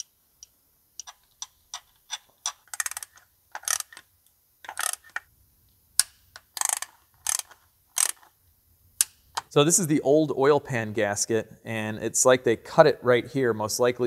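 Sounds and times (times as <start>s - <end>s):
hand ratchet clicking: 1.0s - 4.0s, 4.6s - 5.2s, 6.0s - 8.3s.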